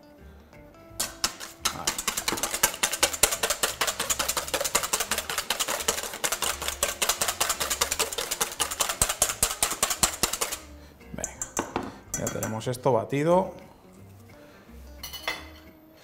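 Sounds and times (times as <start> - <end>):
fork clicking against metal bowl: 1.0 - 12.6.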